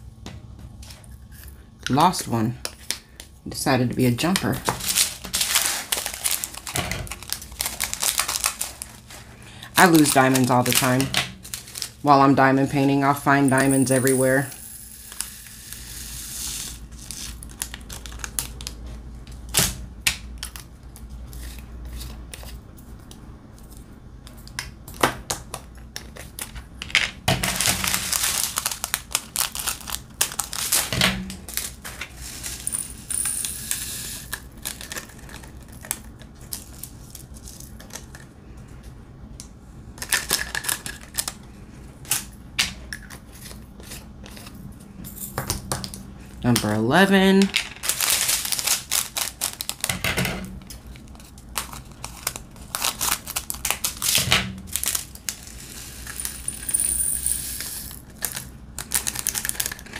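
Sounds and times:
plastic bags crinkling: 4.4s - 12.2s, 16.7s - 18.8s, 27.4s - 33.0s, 34.2s - 38.2s, 40.0s - 41.4s, 47.4s - 50.0s, 50.6s - 56.6s, 58.0s - 59.9s
small beads rattling into tray: 13.4s - 17.4s, 31.5s - 35.9s, 54.7s - 59.9s.

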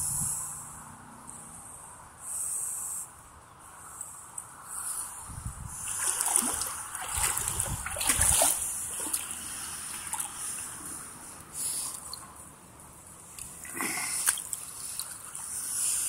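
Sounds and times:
water splashing from wading: 5.7s - 10.8s, 13.3s - 15.7s.

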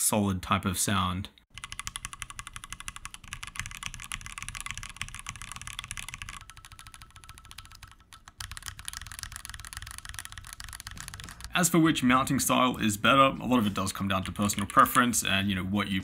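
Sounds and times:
fast typing on mechanical keyboard: 1.5s - 11.7s.

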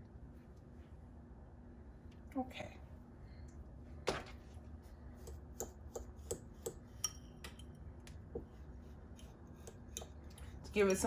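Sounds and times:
fork clinking against glass bowl: 7.0s - 7.7s.

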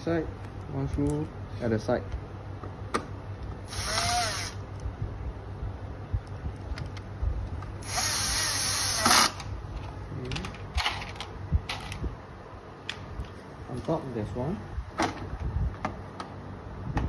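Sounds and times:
cordless drill driving a screw: 3.7s - 4.6s, 7.8s - 9.4s.

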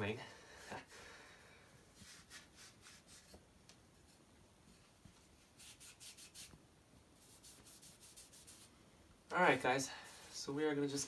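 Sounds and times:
towel rubbing wooden spoon: 1.9s - 3.4s, 5.2s - 6.6s, 7.2s - 8.7s.

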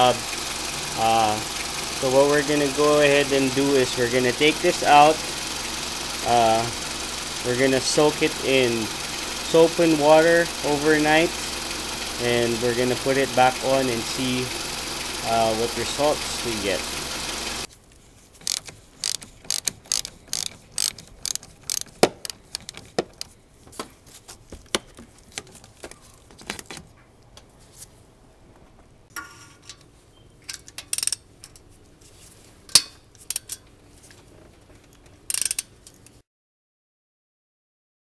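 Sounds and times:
socket ratchet clicking: 18.4s - 23.3s, 30.5s - 31.2s, 35.3s - 35.7s.

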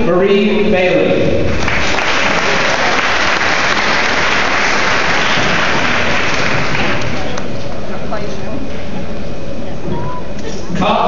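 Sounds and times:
audience applauding: 1.5s - 7.6s.

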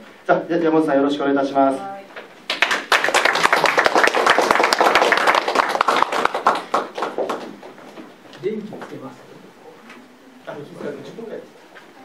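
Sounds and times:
audience applauding: 2.5s - 7.8s.

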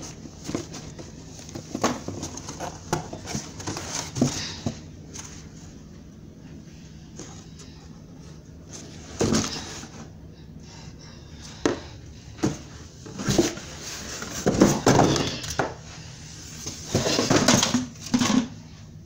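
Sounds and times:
cardboard boxes knocking and rustling: 0.0s - 5.4s, 8.7s - 10.1s, 11.6s - 15.8s, 16.6s - 18.5s.

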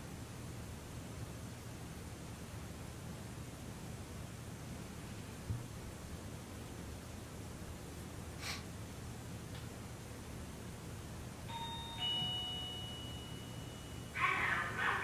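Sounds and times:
ding-dong chime: 11.5s - 14.2s.

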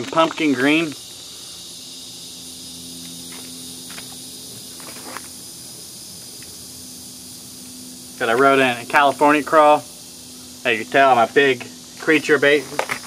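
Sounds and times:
steady high hiss: 0.0s - 13.0s.

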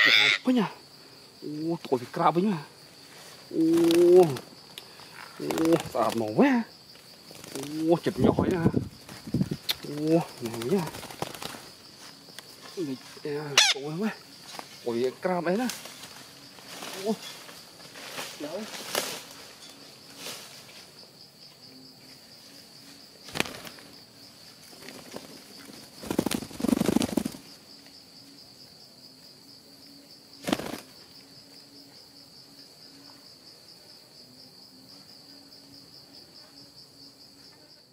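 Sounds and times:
high-pitched insect drone: 0.0s - 37.9s
parakeets flapping wings: 3.6s - 4.5s, 5.2s - 6.4s, 7.2s - 11.7s, 23.2s - 23.9s, 24.8s - 27.5s, 30.4s - 31.0s.

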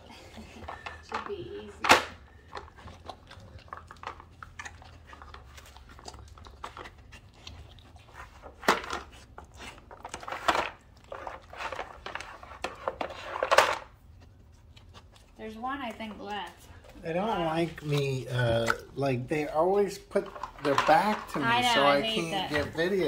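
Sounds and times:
dog chewing at a toy: 2.2s - 23.0s.

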